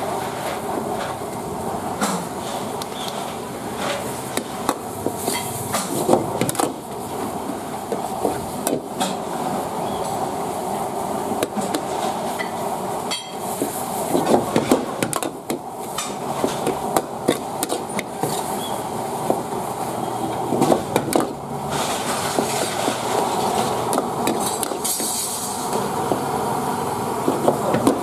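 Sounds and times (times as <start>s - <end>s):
food sizzling in wok: 20.8s - 27.2s.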